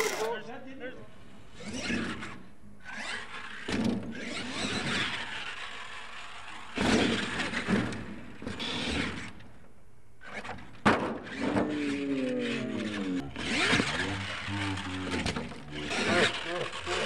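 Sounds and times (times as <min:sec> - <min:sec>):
toy truck motor revving: 0:00.0 - 0:00.4, 0:01.6 - 0:07.8, 0:11.2 - 0:17.0.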